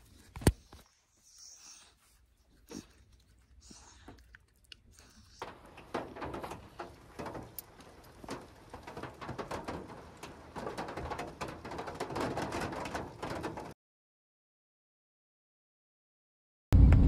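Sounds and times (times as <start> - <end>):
dog chewing and licking: 0.0 - 12.8.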